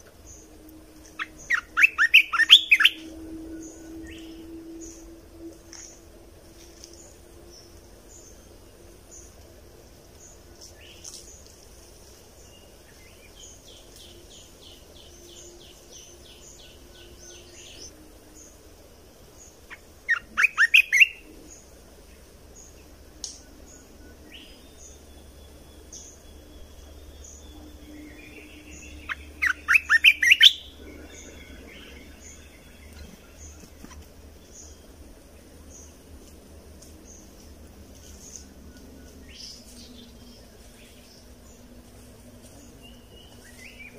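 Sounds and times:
bulbul singing: 0.0s - 6.1s, 12.4s - 18.6s, 19.3s - 36.0s.

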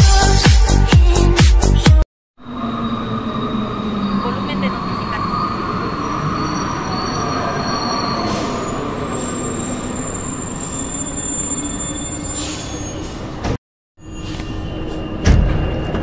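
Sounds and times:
high-pitched squealing: 2.4s - 13.3s
metro train rolling rumble: 2.4s - 16.0s.

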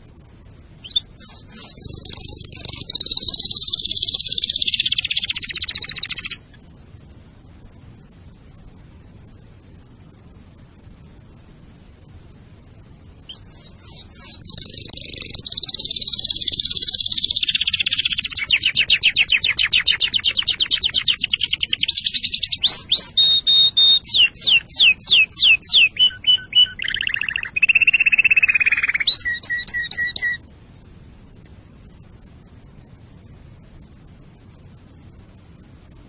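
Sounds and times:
canary singing: 0.8s - 6.5s, 13.3s - 30.4s.

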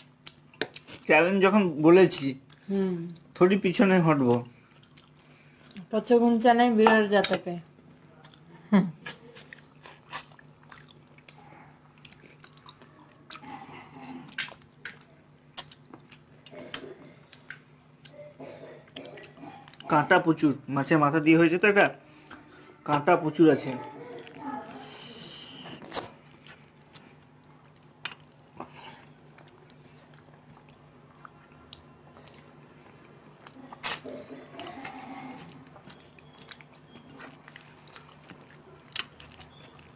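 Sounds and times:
chewing and mouth clicks: 0.0s - 1.1s, 4.2s - 5.9s, 7.2s - 18.3s, 25.7s - 39.9s
fingers mixing rice on steel plates: 6.7s - 7.5s.

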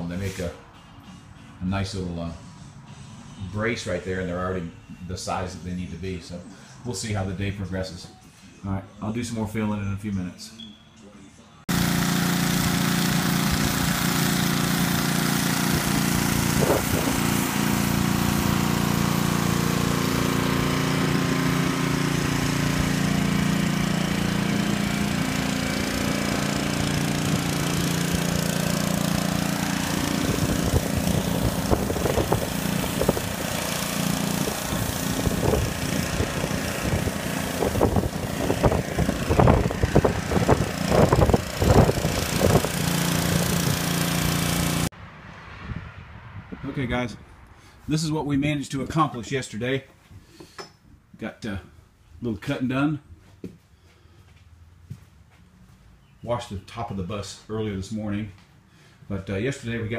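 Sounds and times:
small gasoline engine running: 11.7s - 44.9s.

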